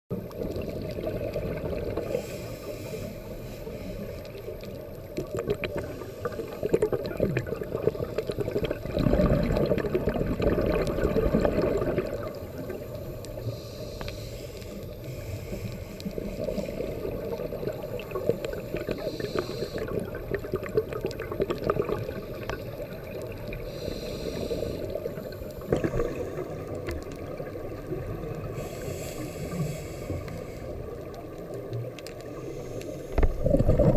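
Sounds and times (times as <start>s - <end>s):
faint crackling clicks: 0.1s - 33.9s
muffled underwater rush: 0.1s - 33.9s
exhaled bubbles rushing: 0.2s - 2.2s, 5.2s - 13.0s, 16.4s - 23.7s, 24.8s - 28.6s, 33.1s - 33.9s
regulator breathing hiss: 2.0s - 4.7s, 5.8s - 6.8s, 12.4s - 17.1s, 18.1s - 20.1s, 23.5s - 25.6s, 28.4s - 31.0s, 32.3s - 33.4s.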